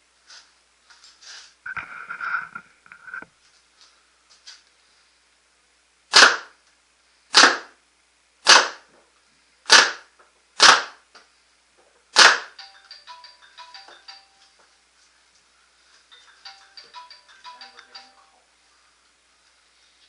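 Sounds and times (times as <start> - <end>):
paintball marker shots: 6.1 - 6.6, 7.3 - 7.8, 8.4 - 8.9, 9.7 - 11.0, 12.2 - 12.6.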